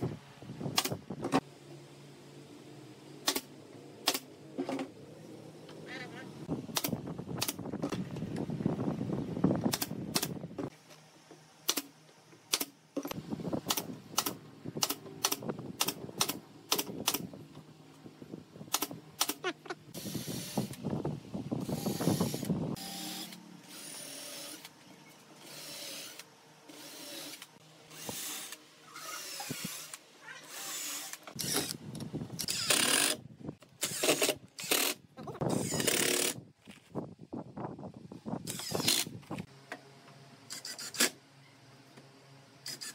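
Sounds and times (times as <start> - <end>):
cordless drill driving screws: 25.4 - 31.8, 32.4 - 33.2, 33.8 - 36.4, 38.5 - 39.1.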